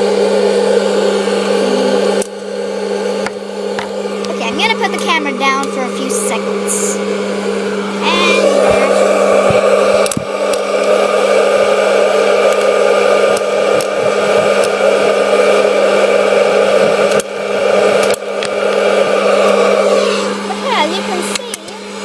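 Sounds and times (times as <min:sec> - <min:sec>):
popcorn machine fan whirring: 0:00.0 - 0:22.0
popcorn kernels popping: 0:17.0 - 0:17.3, 0:18.0 - 0:18.8.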